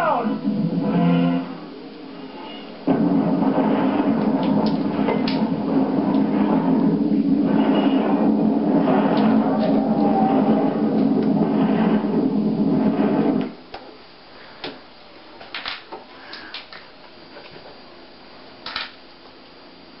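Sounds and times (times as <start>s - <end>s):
explosion rumble through tv speaker: 2.8s - 13.6s.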